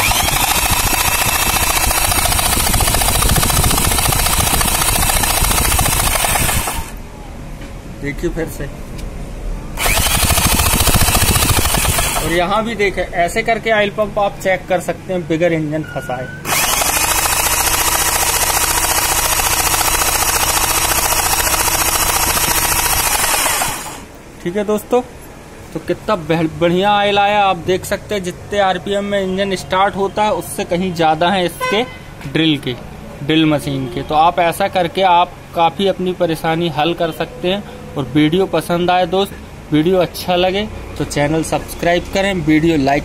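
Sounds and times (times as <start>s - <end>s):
electric drill spinning engine: 0.0s - 7.0s, 9.8s - 12.4s, 16.4s - 24.2s.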